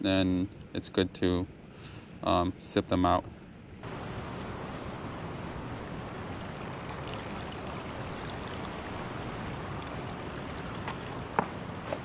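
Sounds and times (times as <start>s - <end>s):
surf rushing at the shore: 3.9s - 12.0s.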